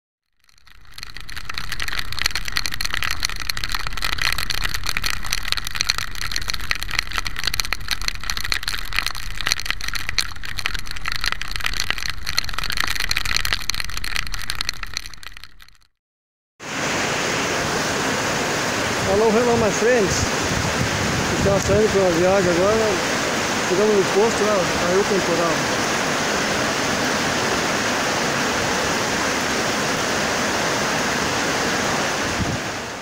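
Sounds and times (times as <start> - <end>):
raindrops hitting camera: 0.4 - 15.9, 16.6 - 33.0
rain and wind rushing hiss: 16.6 - 33.0.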